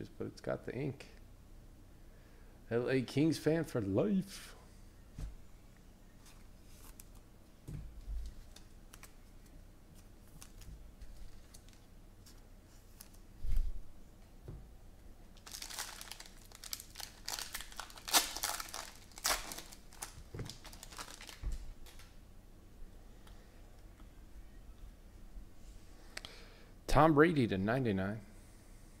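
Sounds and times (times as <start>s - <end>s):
foil wrappers crinkling and tearing: 10.0s - 11.9s, 15.4s - 22.1s.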